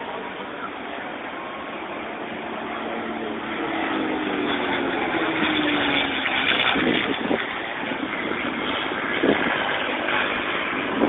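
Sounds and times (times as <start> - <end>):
propeller plane engine droning: 0.0 - 11.0.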